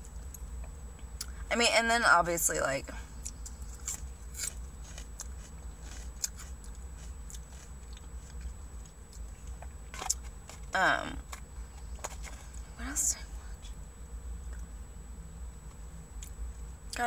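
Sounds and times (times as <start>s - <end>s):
person chewing food: 3.1s - 12.6s
short hummed voice: 10.7s - 11.4s.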